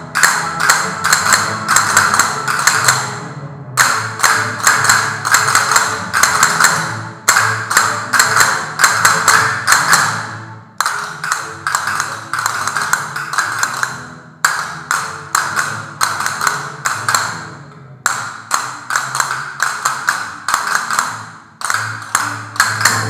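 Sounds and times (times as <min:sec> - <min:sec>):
castanets clicking: 0:03.8 - 0:10.1, 0:10.8 - 0:17.4, 0:18.1 - 0:23.0.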